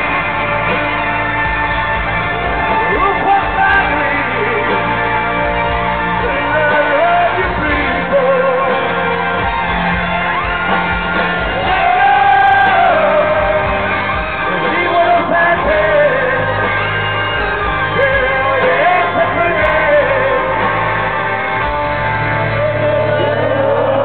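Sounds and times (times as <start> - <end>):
live rock band: 0.0 - 24.0
man singing: 2.6 - 9.4, 11.5 - 21.1, 22.3 - 24.0.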